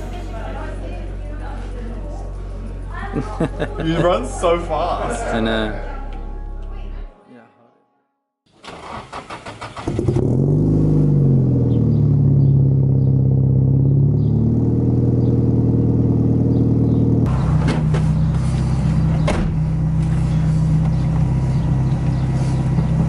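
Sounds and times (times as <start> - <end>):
car engine fast idle: 17.3 - 23.0.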